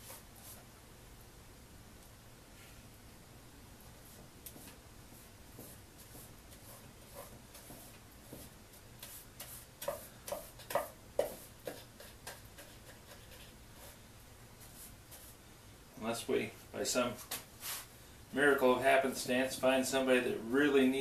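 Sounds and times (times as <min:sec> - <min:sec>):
paintbrush brushing wood: 0:04.0 - 0:14.0, 0:14.6 - 0:15.4
brush tapping wood: 0:04.1 - 0:13.9.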